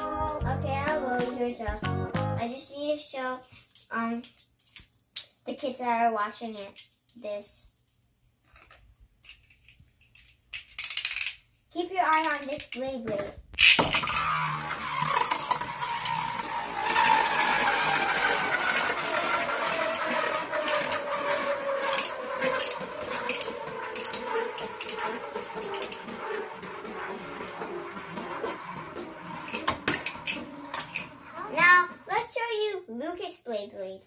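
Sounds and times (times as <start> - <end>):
spinning top whirring: 13.6 - 32.4.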